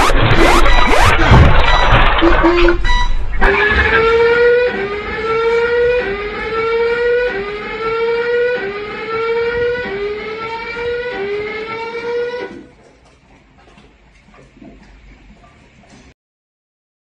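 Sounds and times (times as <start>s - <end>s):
rising siren alarm: 0.0s - 12.8s.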